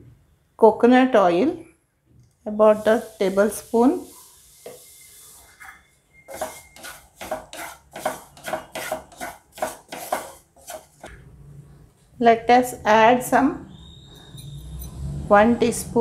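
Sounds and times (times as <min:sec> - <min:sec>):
wooden spatula scraping frying pan: 0:02.7 - 0:11.1.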